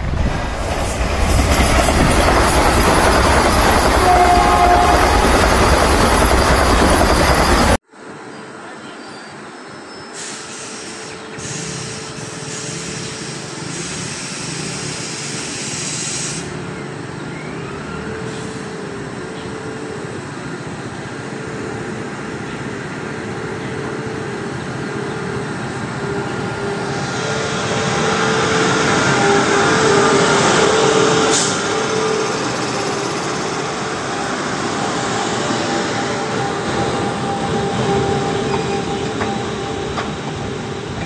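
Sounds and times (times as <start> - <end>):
electric locomotive passing: 0.0 - 41.0
high hiss: 10.1 - 16.7.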